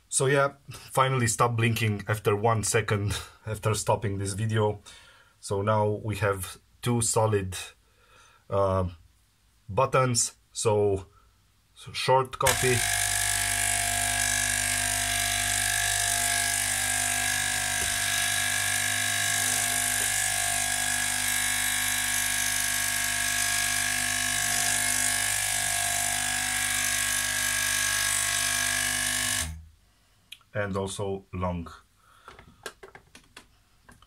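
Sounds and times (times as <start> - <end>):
coffee machine pump humming: 12.5 - 29.6.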